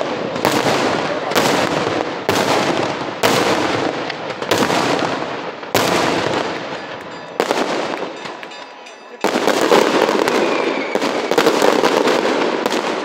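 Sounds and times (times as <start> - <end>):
firework shell bangs with echo: 0.0 - 13.0
small firework cracks: 0.0 - 13.0.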